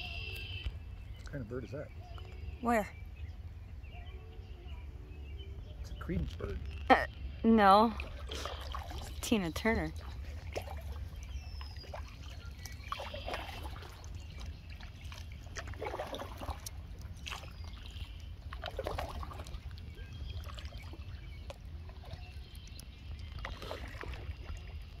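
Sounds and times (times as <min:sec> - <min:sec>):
steady low rumble: 0:00.0 - 0:13.0
canoe paddle strokes in water: 0:08.0 - 0:25.0.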